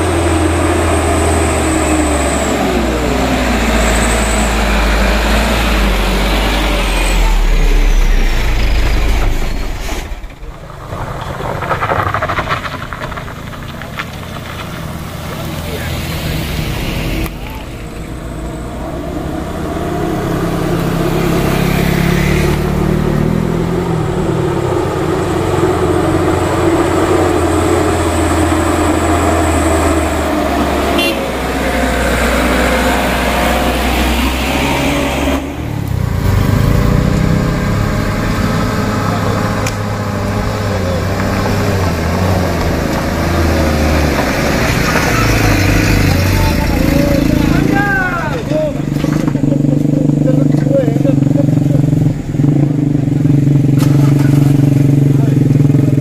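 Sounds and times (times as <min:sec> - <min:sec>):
diesel engine running hard: 0:00.0 - 0:10.5, 0:14.0 - 0:56.0
motorcycle engine labouring: 0:00.0 - 0:56.0
vehicle engine: 0:00.0 - 0:56.0.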